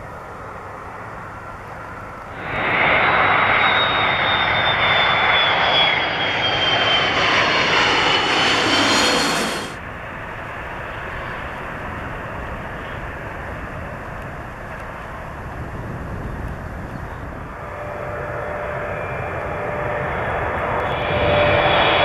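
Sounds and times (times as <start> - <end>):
jet airliner passing overhead: 0.0 - 22.0
steady jet noise: 2.2 - 10.0, 17.4 - 22.0.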